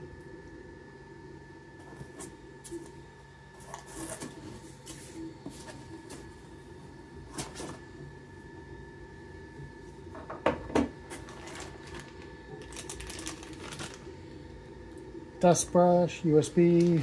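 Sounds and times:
plastic bag crinkling: 0:11.1 - 0:14.4, 0:16.6 - 0:17.0.

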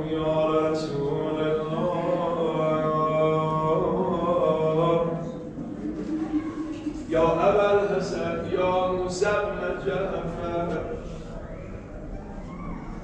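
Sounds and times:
man chanting: 0:00.0 - 0:05.3, 0:07.1 - 0:11.0.

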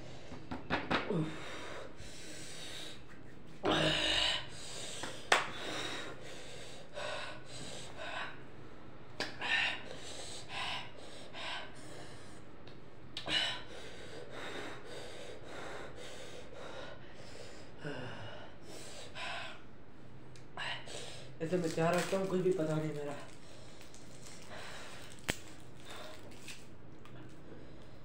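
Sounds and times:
boy gasping and sniffing: 0:01.1 - 0:08.0.

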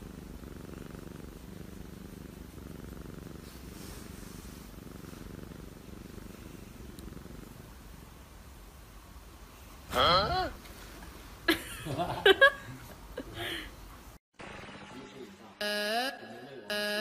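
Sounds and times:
cat purring: 0:00.0 - 0:10.9.

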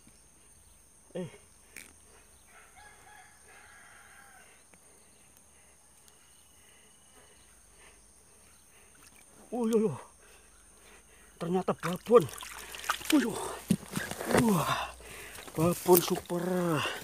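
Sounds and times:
distant rooster crowing: 0:02.5 - 0:04.7.

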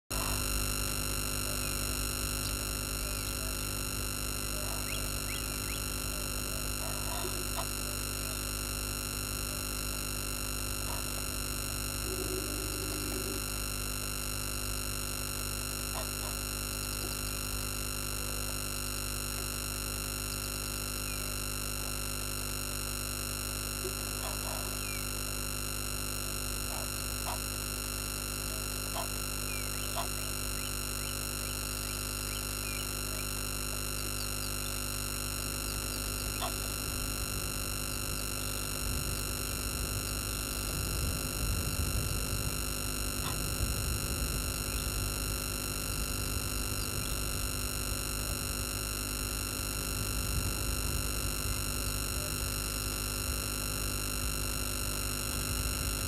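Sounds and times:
steady electrical hum: 0:00.1 - 0:56.0
small animal chirps: 0:04.6 - 0:08.4.

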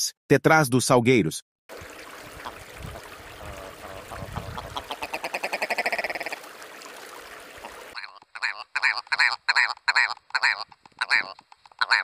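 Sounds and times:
bird rattling call: 0:08.0 - 0:12.0.

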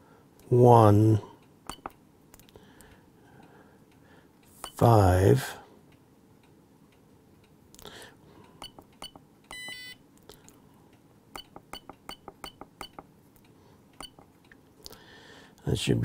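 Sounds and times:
keypad button clicks: 0:08.6 - 0:10.0.

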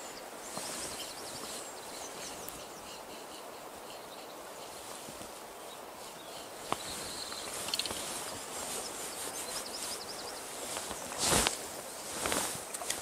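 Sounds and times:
faint chirps: 0:05.6 - 0:11.4.

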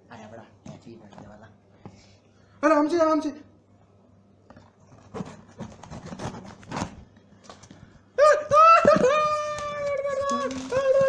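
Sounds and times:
gift wrapping rustling and tearing: 0:04.9 - 0:07.7, 0:08.6 - 0:11.0
woman squealing: 0:08.2 - 0:11.0.

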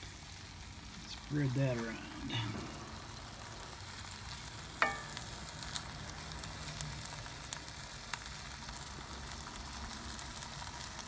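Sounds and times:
food sizzling: 0:00.0 - 0:11.0
light crackles: 0:00.0 - 0:11.0
sharp ringing knock: 0:04.8 - 0:05.2.

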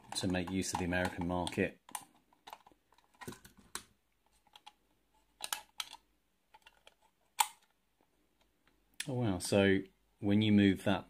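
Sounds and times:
metal toy clicking and tapping: 0:00.0 - 0:02.7.

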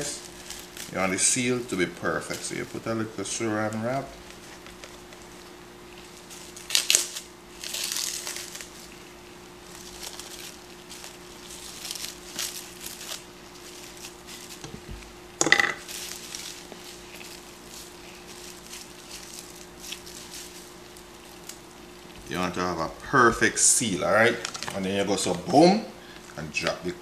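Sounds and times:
plastic cling wrap crinkling: 0:00.0 - 0:15.2, 0:15.8 - 0:23.4.

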